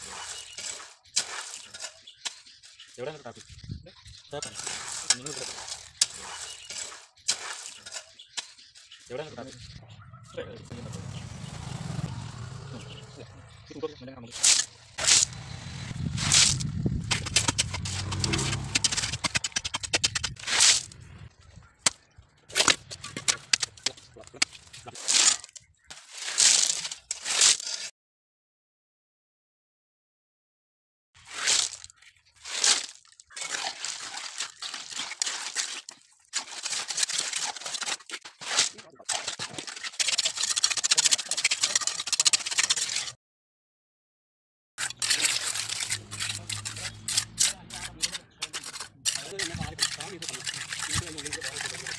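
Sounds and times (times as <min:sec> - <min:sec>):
concrete raked with gritty scrapes: 0:00.0 - 0:09.8, 0:14.3 - 0:27.9, 0:31.2 - 0:43.2, 0:44.8 - 0:51.9
concrete tipped onto gravel: 0:16.2 - 0:21.0, 0:21.8 - 0:27.9.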